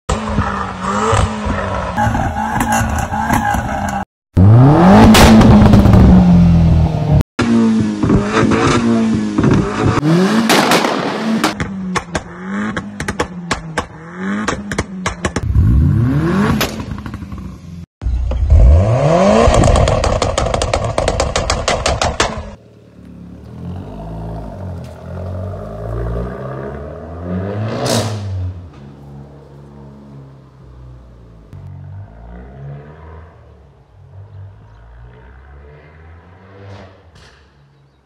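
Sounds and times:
exhaust pops and bangs: 7.8 - 15.6, 19.4 - 22.6.

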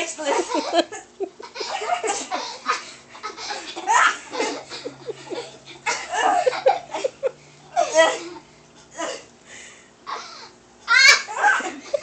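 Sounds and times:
young girls laughing hard: 0.3 - 8.3, 10.9 - 12.0.

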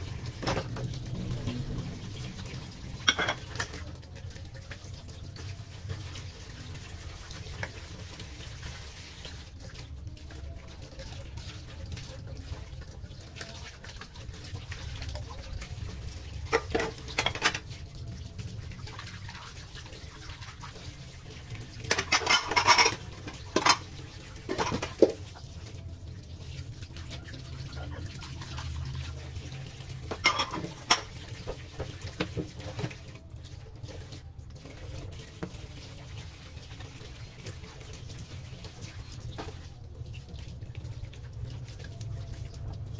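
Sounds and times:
tap water running into sink: 0.0 - 42.9
bowls and plastic ware clattering: 3.0 - 3.8, 16.5 - 17.7, 21.8 - 25.2, 30.1 - 32.9.

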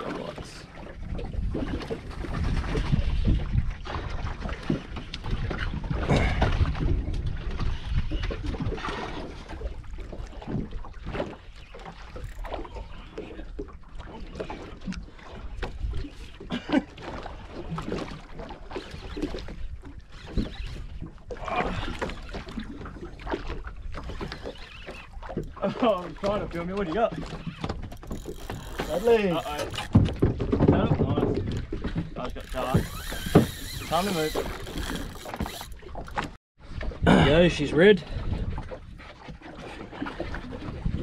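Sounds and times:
wind rumbling on microphone: 0.0 - 11.4, 27.2 - 41.0
water splashing against hull: 0.0 - 41.0.

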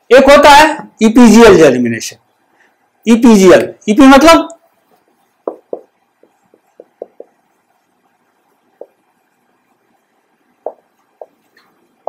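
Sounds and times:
marker pen on a whiteboard: 3.5 - 12.0.

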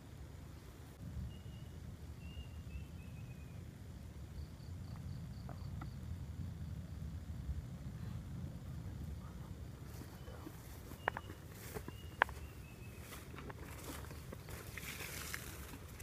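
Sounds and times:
steady low rumble: 0.0 - 16.0
faint chirps: 1.2 - 3.7, 9.2 - 15.4.

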